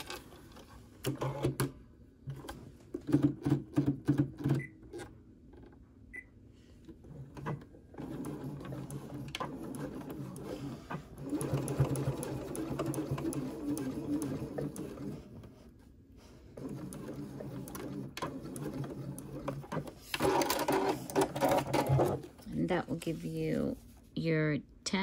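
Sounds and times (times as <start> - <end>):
sewing machine stitching: 7.0 - 15.5, 16.6 - 22.4.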